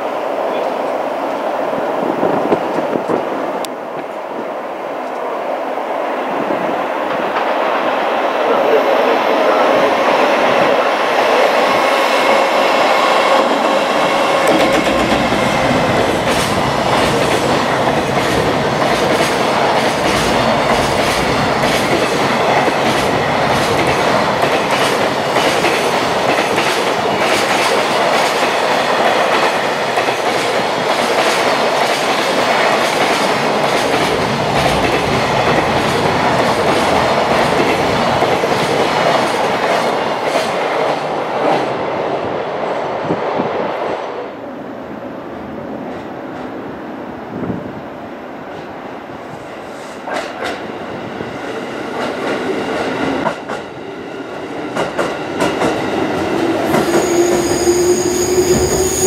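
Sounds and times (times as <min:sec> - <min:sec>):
electric locomotive whine: 0:00.0 - 0:31.0, 0:50.6 - 0:59.0.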